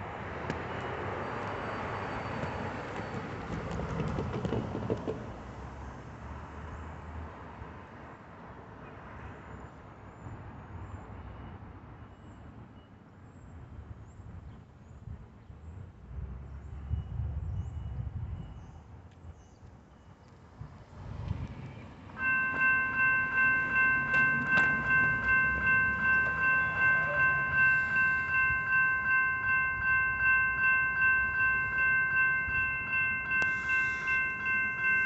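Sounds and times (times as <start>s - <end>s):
tyre and engine noise: 20.1s - 35.0s.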